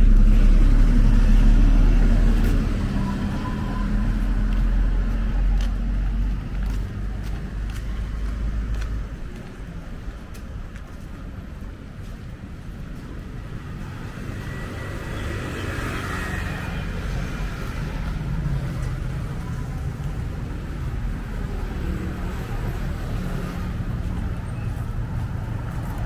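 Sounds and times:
road traffic rumble: 0:00.0 - 0:26.0.

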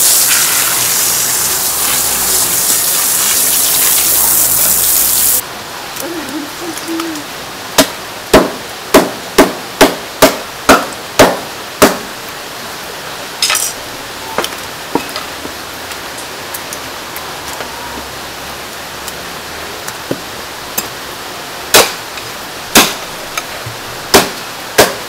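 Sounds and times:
hose water spraying: 0:00.0 - 0:05.4
cleaver chopping on wooden block: 0:07.8 - 0:12.1.

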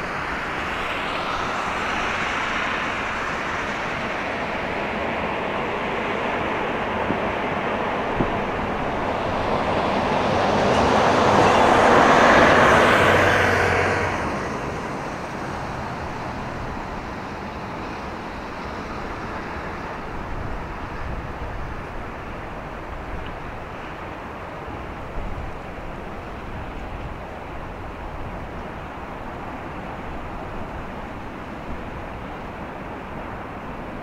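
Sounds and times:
background traffic noise: 0:00.0 - 0:34.0
motor vehicle passing by: 0:08.5 - 0:18.1.

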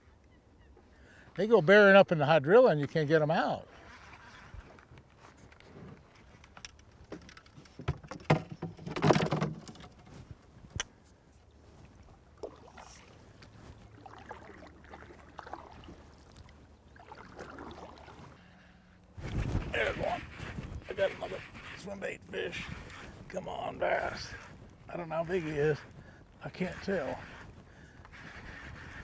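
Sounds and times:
paddle swishing through water: 0:07.0 - 0:29.0
paddle knocking against canoe: 0:07.1 - 0:10.1.

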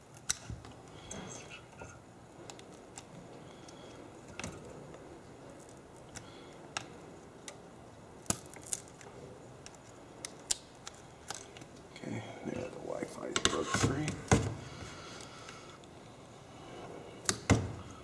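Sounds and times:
faint steady hiss: 0:00.0 - 0:18.0
glass clicking and cracking: 0:08.2 - 0:11.8.

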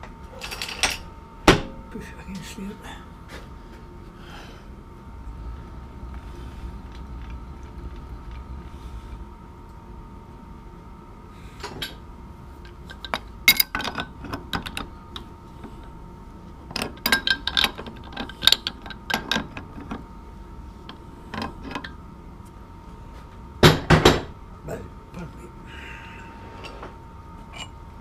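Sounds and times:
faint high hum: 0:00.0 - 0:28.0
metal tools clanking: 0:12.9 - 0:14.8.

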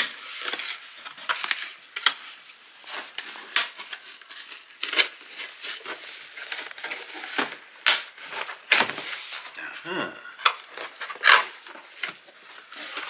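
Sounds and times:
packing crinkling: 0:00.0 - 0:09.6.

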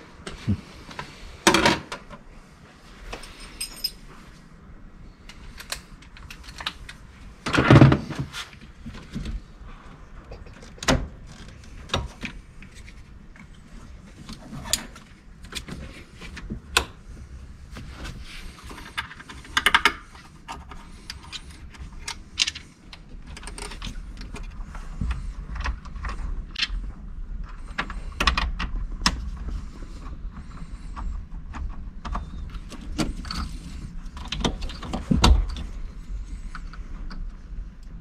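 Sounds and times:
hands handling parts rattling: 0:03.0 - 0:04.4.

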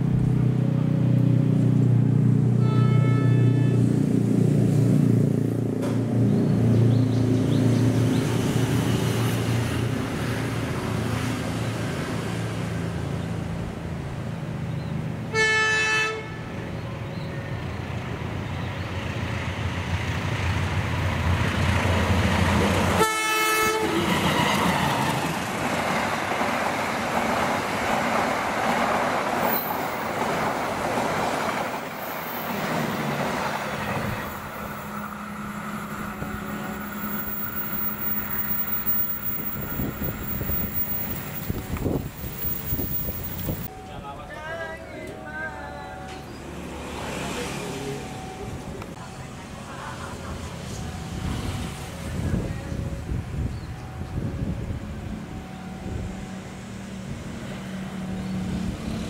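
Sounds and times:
horn toots: 0:02.6 - 0:04.0, 0:23.0 - 0:24.4.

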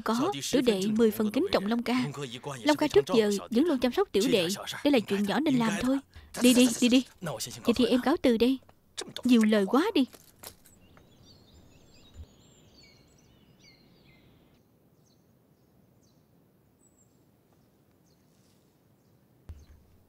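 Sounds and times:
faint bird chirps: 0:10.7 - 0:19.9.

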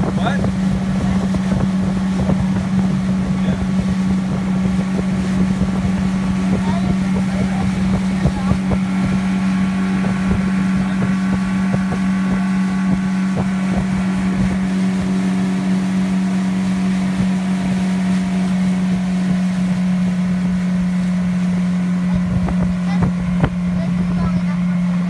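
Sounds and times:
boat motor droning: 0:00.0 - 0:25.0
wind buffeting microphone: 0:00.0 - 0:25.0.

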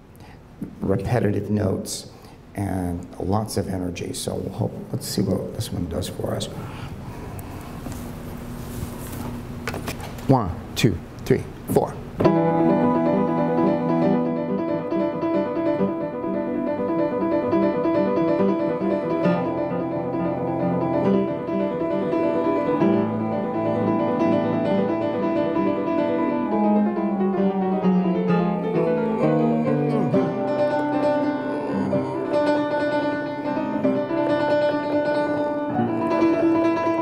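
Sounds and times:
fast instrumental toccata: 0:12.2 - 0:37.0.

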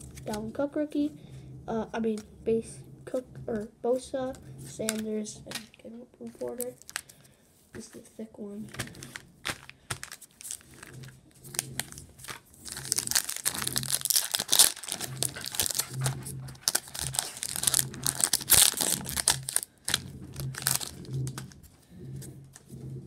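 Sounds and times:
foil wrapper crinkling and tearing: 0:06.4 - 0:07.2, 0:08.7 - 0:21.6.

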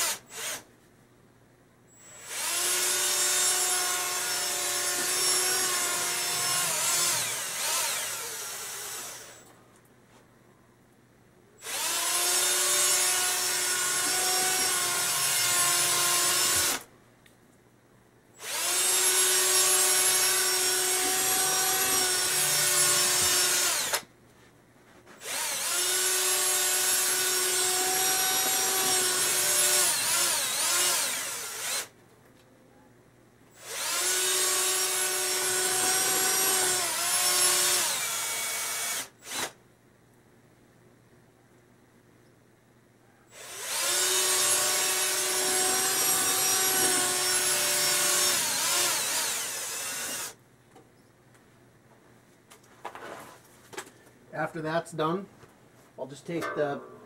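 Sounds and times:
cordless drill whining: 0:00.0 - 0:00.7, 0:01.9 - 0:09.5, 0:11.6 - 0:16.9, 0:18.4 - 0:24.1, 0:25.2 - 0:31.9, 0:33.6 - 0:39.6, 0:43.3 - 0:50.4.

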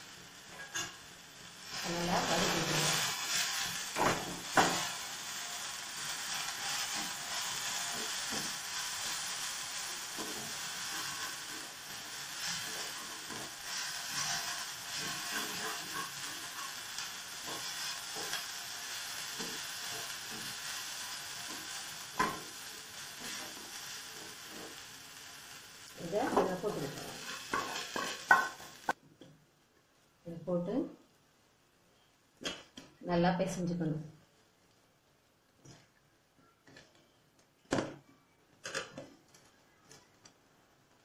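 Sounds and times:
onions sizzling in oil: 0:00.0 - 0:29.0
spatula scraping pan: 0:06.1 - 0:24.9, 0:26.2 - 0:29.0.

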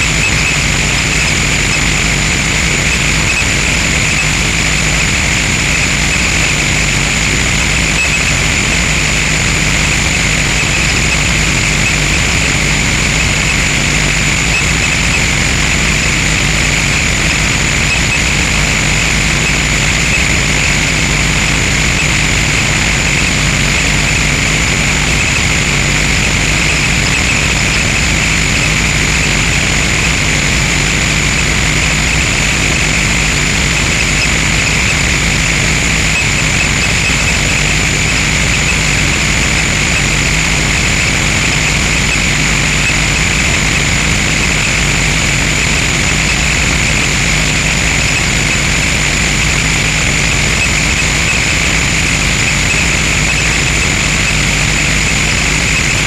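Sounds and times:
harsh distorted electronic noise: 0:00.0 - 0:56.0.

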